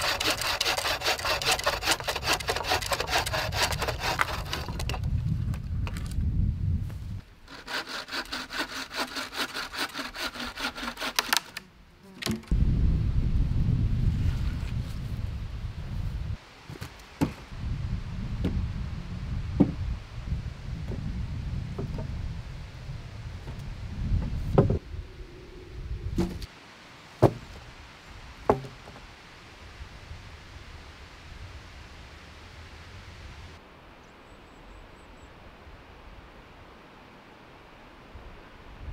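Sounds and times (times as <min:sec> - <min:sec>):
bow saw cutting wood: 0:00.0 - 0:05.0, 0:07.4 - 0:12.5, 0:26.2 - 0:26.5
low rumble: 0:12.5 - 0:16.4, 0:17.6 - 0:26.5
sharp hollow knocks: 0:26.2 - 0:26.5, 0:27.2 - 0:27.6, 0:28.5 - 0:29.0
sharp knocks: 0:28.5 - 0:29.0.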